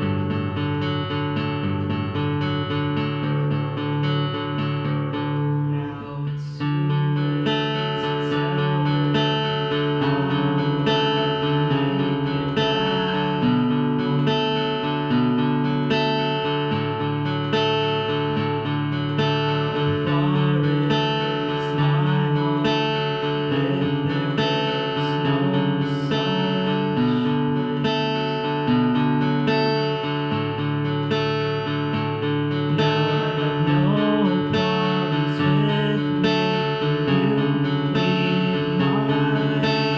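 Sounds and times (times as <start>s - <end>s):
acoustic guitar strumming: 0.0s - 39.9s.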